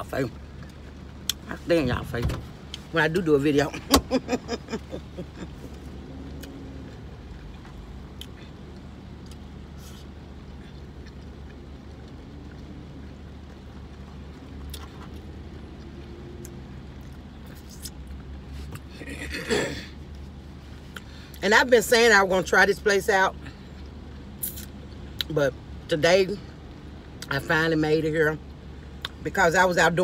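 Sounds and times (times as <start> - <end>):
car idling hum: 0.0 - 30.0
quiet chewing: 5.5 - 18.9.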